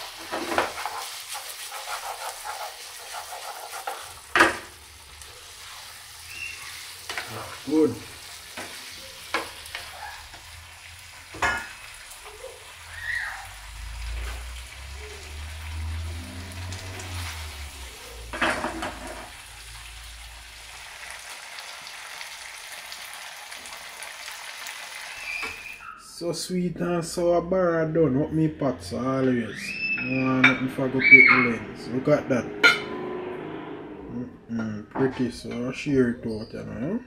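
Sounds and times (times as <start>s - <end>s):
spatula stirring in pan: 0.0s - 10.6s
fish sizzling in a frying pan: 0.0s - 25.8s.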